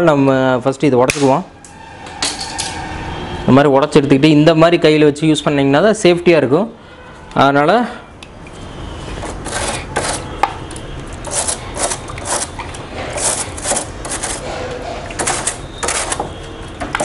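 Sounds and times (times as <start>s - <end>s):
toothbrush scrubbing metal fins: 9.3s - 16.2s.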